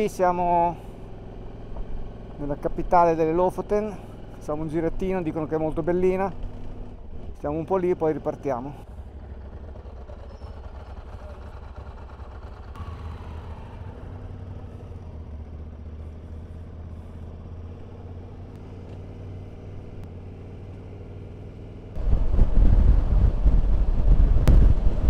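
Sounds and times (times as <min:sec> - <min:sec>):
motorcycle engine running: 0:00.0 - 0:25.0
wind buffeting microphone: 0:22.0 - 0:25.0.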